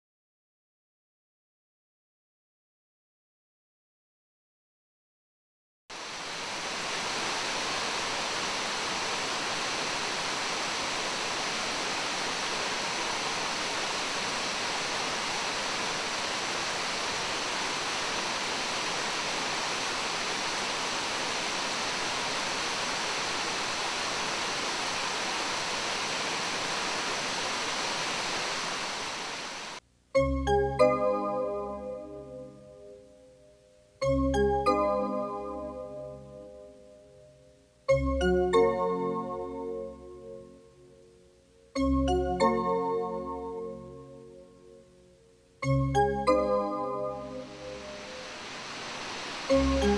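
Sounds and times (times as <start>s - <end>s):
waterfall rushing: 5.9s - 29.8s, 46.4s - 49.9s.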